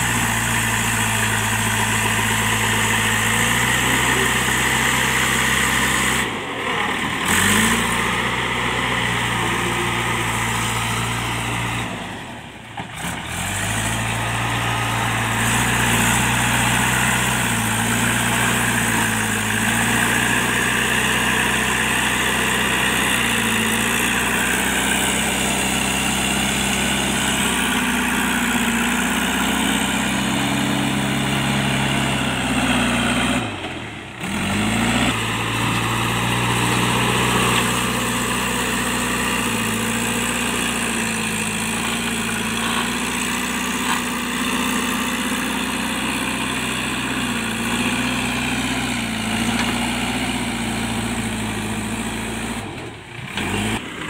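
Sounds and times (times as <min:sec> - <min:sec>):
backhoe diesel engine running: 0:00.0 - 0:54.0.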